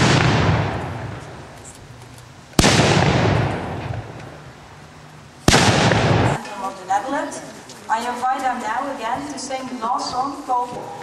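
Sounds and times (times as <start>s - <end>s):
salute charge bangs with echo: 0.0s - 1.4s, 2.6s - 4.2s, 5.5s - 6.4s.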